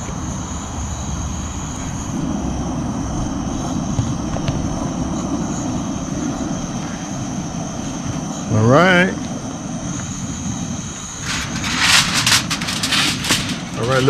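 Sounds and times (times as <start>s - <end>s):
gas burner flame rushing: 9.2s - 14.0s.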